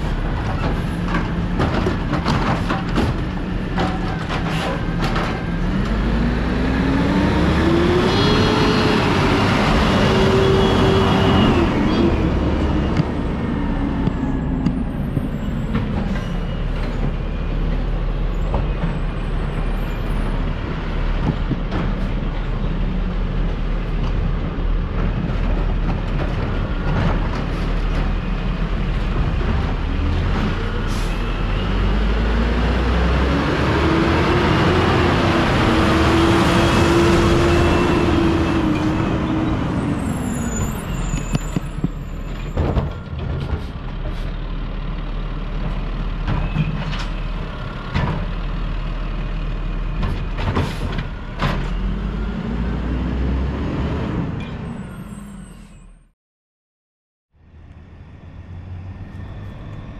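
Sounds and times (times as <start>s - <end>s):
diesel truck engine passing: 4.8s - 18.3s, 27.7s - 41.3s, 57.4s - 59.9s.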